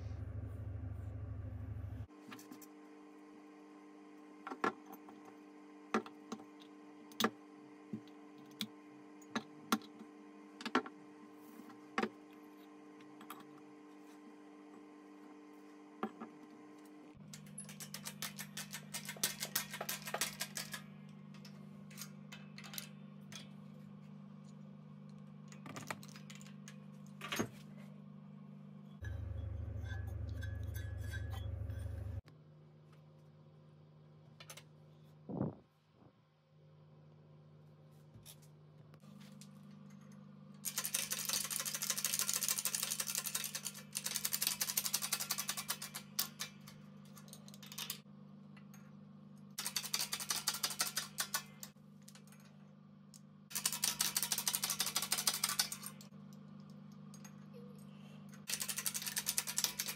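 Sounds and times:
metal parts clicking and tapping: 17.2 - 23.6, 40.6 - 48.0, 49.6 - 52.6, 53.5 - 57.5, 58.3 - 59.9.

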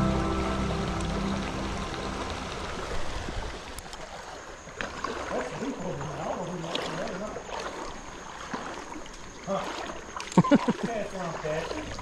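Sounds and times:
creek water rushing over rocks: 0.0 - 12.0.

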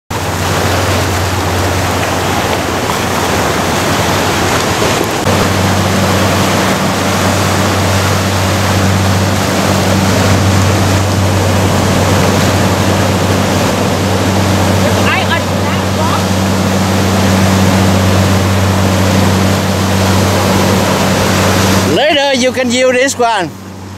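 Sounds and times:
low hum: 0.1 - 23.9
surf breaking over rocks: 0.1 - 23.9.

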